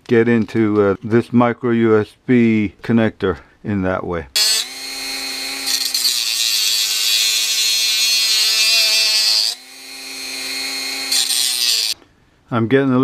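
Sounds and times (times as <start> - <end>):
rotary tool whining: 4.4 - 12.0.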